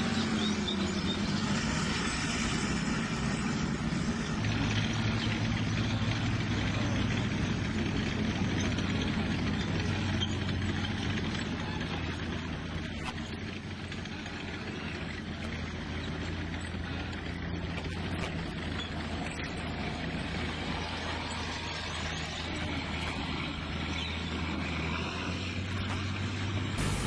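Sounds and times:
heavy vehicle engines rumbling: 0.0 - 27.0.

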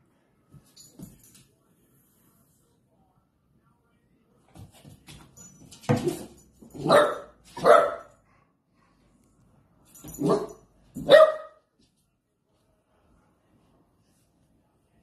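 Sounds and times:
puppy barking: 6.8 - 8.2, 10.2 - 11.7.

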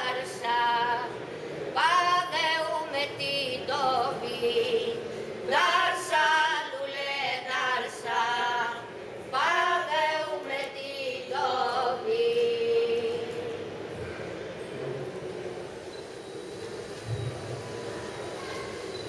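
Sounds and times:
women singing unaccompanied: 0.0 - 13.7.

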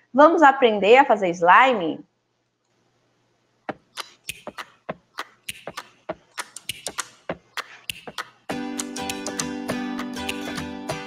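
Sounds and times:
sharp clicks and taps: 3.7 - 9.5.

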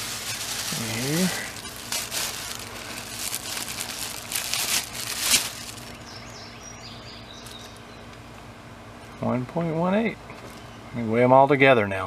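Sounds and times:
paper bag rustling and crinkling: 0.0 - 6.0.

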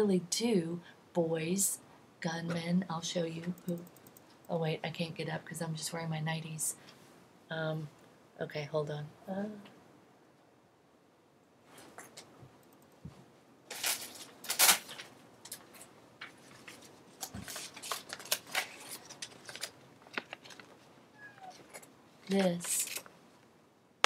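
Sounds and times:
small clicks: 3.6 - 4.3
photo prints rustling: 13.7 - 23.2.

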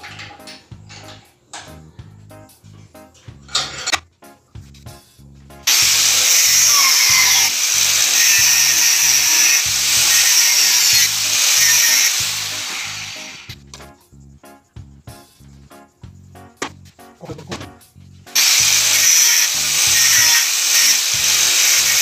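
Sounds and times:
angle grinder cutting steel: 5.7 - 13.6, 18.4 - 22.0.

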